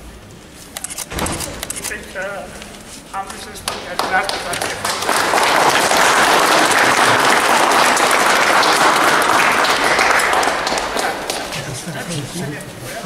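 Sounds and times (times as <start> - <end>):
audience applauding: 3.3 - 12.6.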